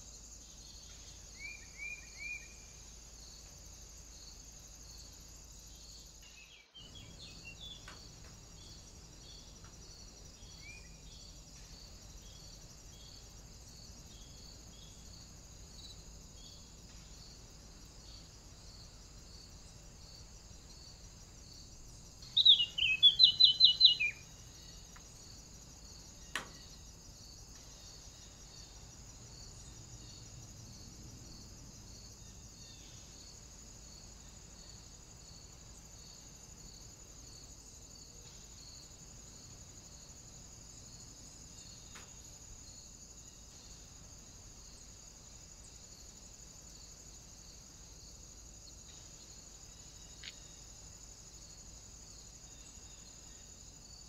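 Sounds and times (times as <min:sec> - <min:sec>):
insects chirring: 0:00.0 - 0:54.0
bird calls: 0:22.3 - 0:24.2.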